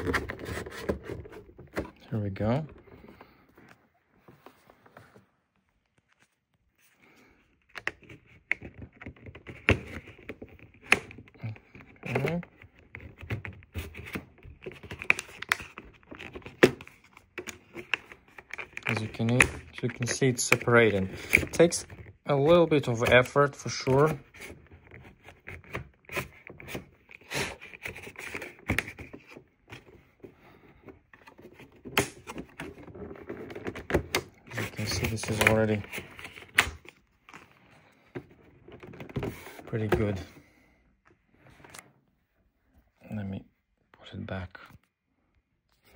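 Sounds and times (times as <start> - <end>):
plastic scraping: 0.0 - 5.3, 7.6 - 40.5
plastic cover clicks and snaps: 31.8 - 32.6.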